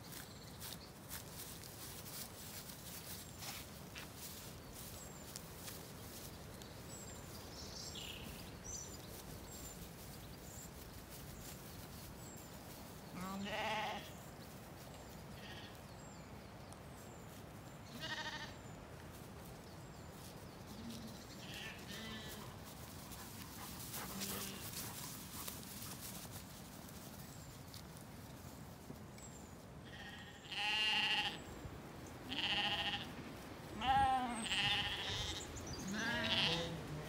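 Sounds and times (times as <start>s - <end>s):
steady outdoor ambience: 0.0s - 37.0s
sheep bleating: 13.2s - 14.1s, 17.9s - 18.6s, 21.4s - 22.5s, 29.8s - 31.4s, 32.3s - 33.1s, 33.8s - 37.0s.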